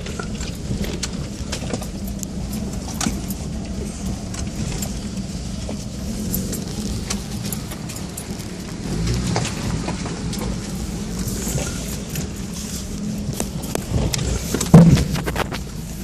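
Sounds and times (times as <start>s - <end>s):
vehicle engine low rumble: 0.0s - 16.0s
vehicle rattling on rocky track: 0.0s - 16.0s.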